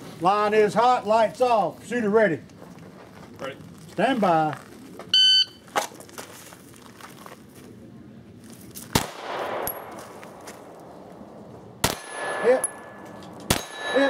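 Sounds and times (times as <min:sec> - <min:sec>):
gunshots: 0:08.9 - 0:10.0, 0:11.8 - 0:14.0
steel targets ringing: 0:11.9 - 0:14.0.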